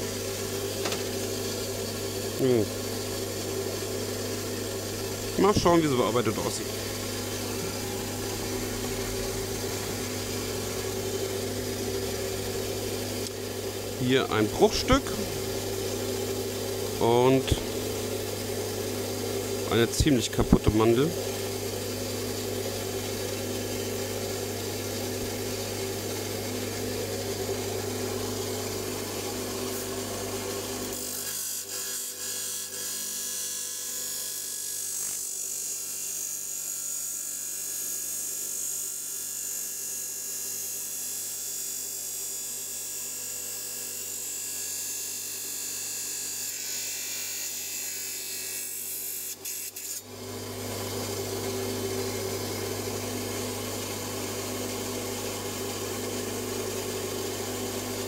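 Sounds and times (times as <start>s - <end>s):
power tool motor hum: 0.0s - 19.8s, 20.4s - 31.8s.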